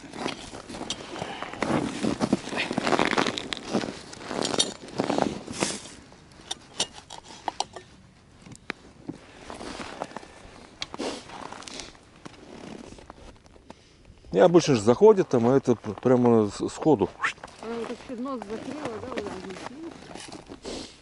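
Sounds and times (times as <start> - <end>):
rustling and scraping: 0.0 - 13.9, 15.0 - 21.0.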